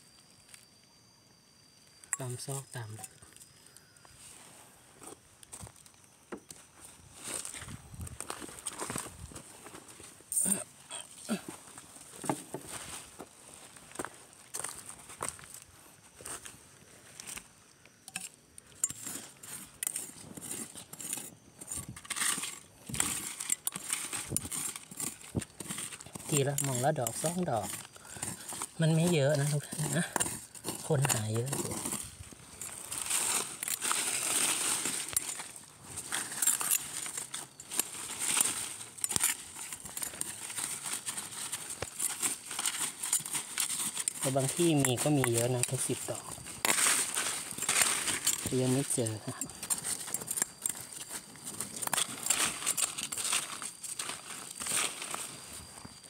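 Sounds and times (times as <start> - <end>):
spoon clinking against rock: 18.1 - 32.0, 47.5 - 54.0
metal spoon scraping soil: 18.1 - 55.8
dry leaves rustling and crackling: 19.0 - 56.0.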